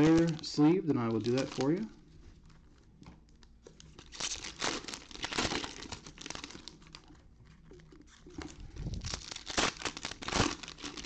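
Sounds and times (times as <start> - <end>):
card pack wrappers crinkling: 0.0 - 2.0, 3.3 - 7.1, 8.1 - 11.0.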